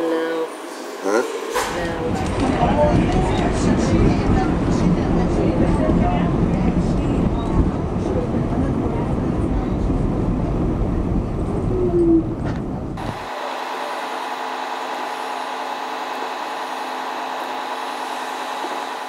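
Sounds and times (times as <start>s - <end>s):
subway train rumbling on rails: 0.0s - 13.4s
bus engine idling hum: 0.0s - 19.0s
train whine: 0.0s - 19.0s.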